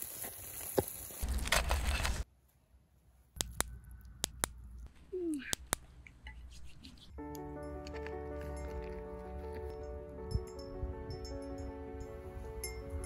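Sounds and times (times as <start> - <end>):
wood fire crackling: 0.0 - 2.3.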